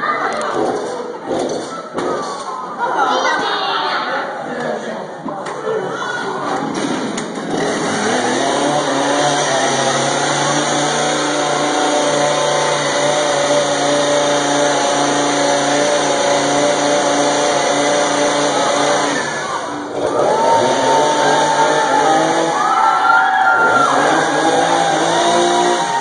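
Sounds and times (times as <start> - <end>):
chainsaw engine running: 7.4 - 26.0.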